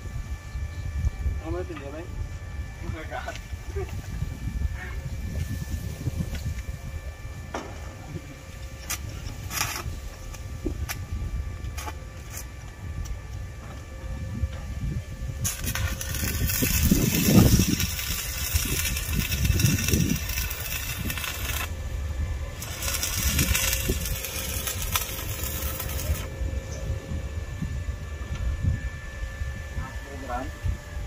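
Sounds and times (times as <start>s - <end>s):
arc welding crackling hiss: 2.8s - 6.8s, 7.6s - 13.4s, 14.6s - 26.4s.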